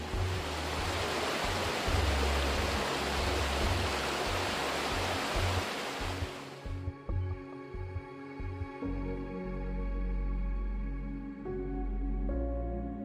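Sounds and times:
water rushing over stones: 0.0 - 6.7
background music: 0.0 - 13.0.

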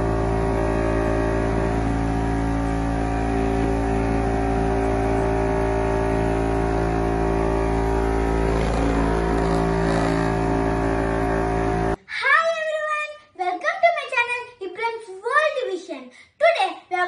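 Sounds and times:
vacuum cleaner motor whining: 0.0 - 12.0.

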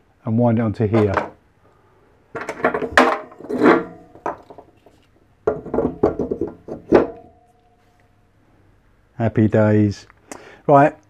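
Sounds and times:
plastic spool knocking and rattling: 2.4 - 4.8, 5.4 - 7.2.

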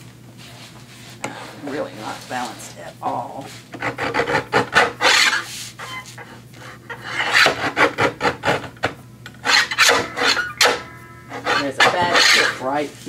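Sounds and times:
paper cutter blade scraping: 3.8 - 12.7.

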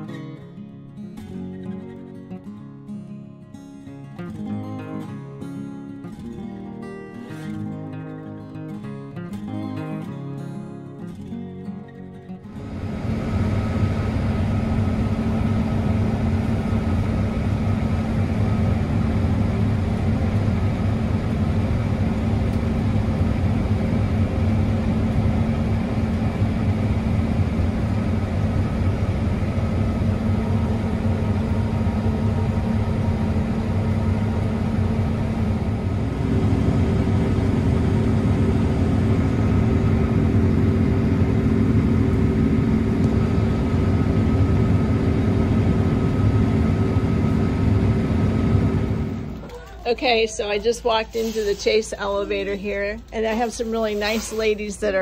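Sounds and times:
combine harvester drone: 12.4 - 55.0.

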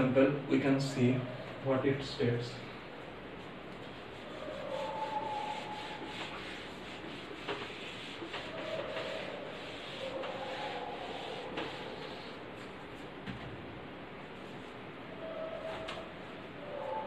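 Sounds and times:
duster wiping a whiteboard: 3.4 - 13.2.

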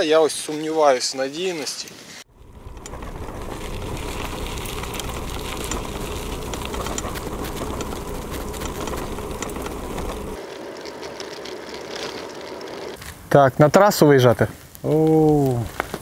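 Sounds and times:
bicycle tyres rumbling: 2.3 - 13.5
bike clicks and rattles: 2.4 - 13.2.

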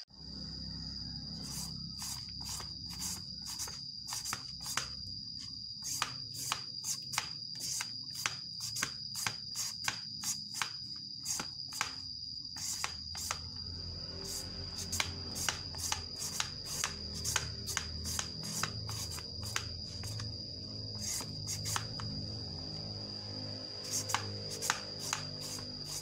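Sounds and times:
high-pitched insect trill: 0.1 - 26.0
blade scraping papaya: 14.2 - 20.2, 23.8 - 26.0.

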